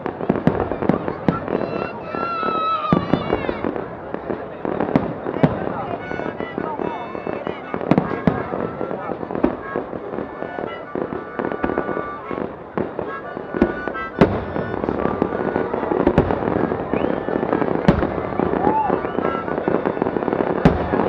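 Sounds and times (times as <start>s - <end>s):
fireworks crackling: 0.0s - 21.0s
firework shells bursting: 12.5s - 21.0s.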